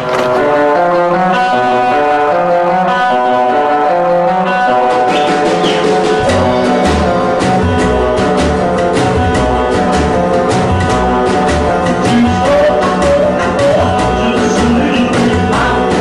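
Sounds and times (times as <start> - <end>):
instrumental music with brass horns: 0.0 - 16.0
deep bass: 5.5 - 16.0.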